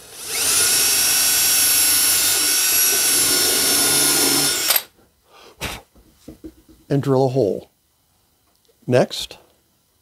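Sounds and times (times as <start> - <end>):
cordless drill whining: 0.0 - 4.9
knock: 6.0 - 6.8.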